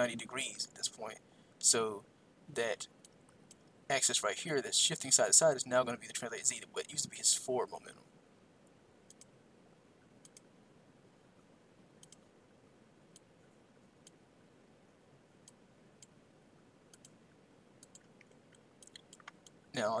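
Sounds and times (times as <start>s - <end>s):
faint computer mouse clicks: 9.1s - 9.3s, 10.2s - 10.5s, 12.0s - 12.3s, 16.9s - 17.2s, 17.8s - 19.6s.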